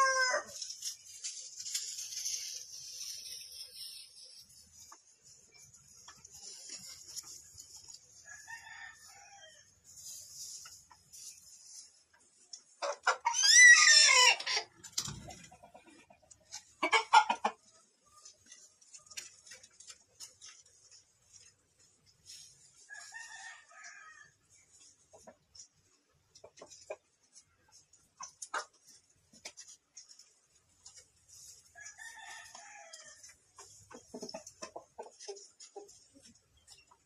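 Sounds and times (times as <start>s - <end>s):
rooster crowing: 0.0s - 0.5s
chicken clucking: 0.0s - 37.0s.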